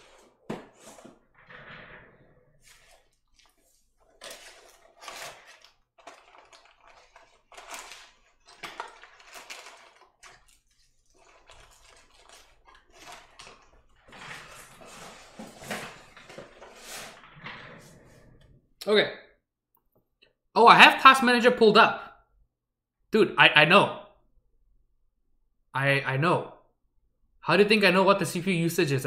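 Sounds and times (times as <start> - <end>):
packaging rustling: 0.0 - 1.9, 2.5 - 17.3
small keyboard parts clattering: 4.0 - 17.6.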